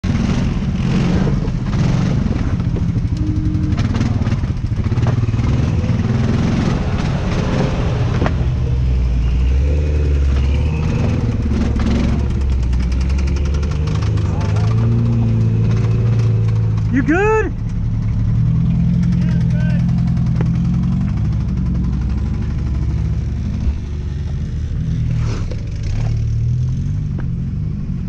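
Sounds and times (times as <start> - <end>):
engine revving: 0.0 - 28.0
engine idling: 0.2 - 6.6, 8.0 - 27.4.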